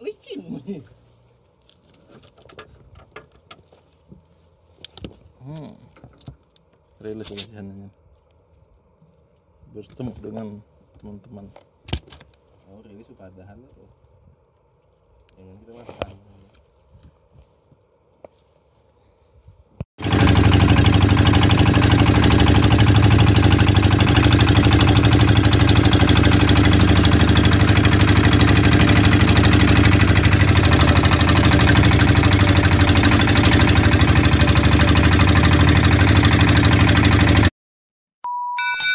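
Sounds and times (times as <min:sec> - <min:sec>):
boat engine running: 0:20.0 - 0:37.5.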